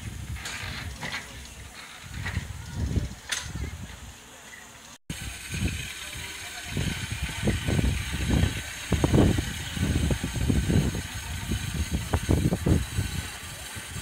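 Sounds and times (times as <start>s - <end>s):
locomotive engine running: 5.1s - 14.0s.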